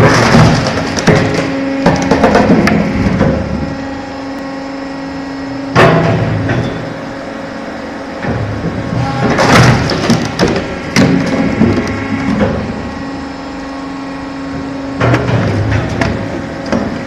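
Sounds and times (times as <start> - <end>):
log splitter mechanical hum: 0.0 - 17.0.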